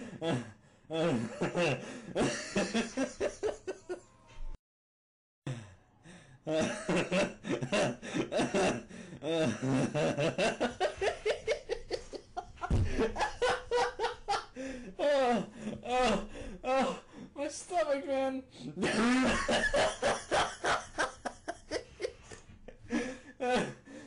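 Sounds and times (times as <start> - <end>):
person laughing: 1.1 - 4.1, 9.6 - 14.5, 18.8 - 22.8
person speaking: 17.4 - 18.8.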